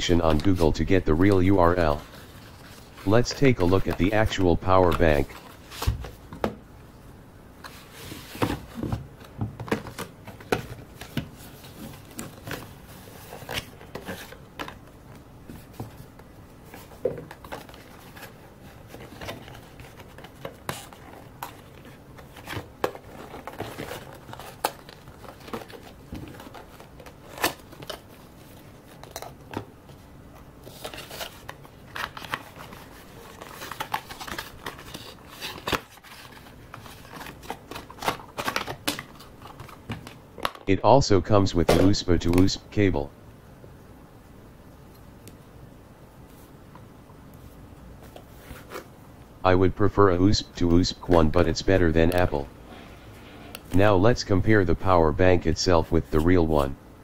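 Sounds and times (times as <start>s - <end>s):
packaging rustling and scraping: 16.7s - 29.6s, 30.6s - 40.2s, 48.0s - 48.9s.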